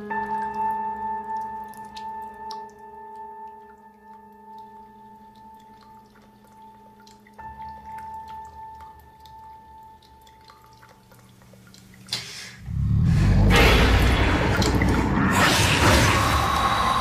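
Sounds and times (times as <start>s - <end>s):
faint dripping: 0.0s - 17.0s
steady drone: 12.6s - 17.0s
sharp hit: 12.7s - 17.0s.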